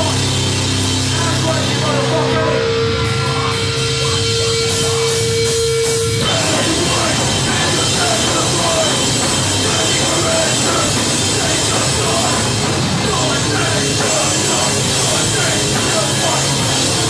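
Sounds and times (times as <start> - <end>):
hardcore band playing: 0.0 - 17.0
person singing into a microphone: 6.2 - 17.0.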